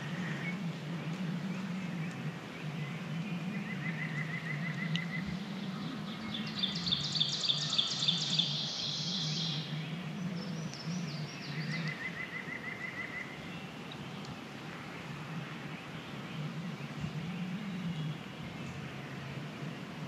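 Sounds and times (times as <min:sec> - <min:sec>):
low wavering hum: 0:00.0 - 0:20.0
songbirds singing: 0:00.0 - 0:20.0
bird trill: 0:02.6 - 0:13.5.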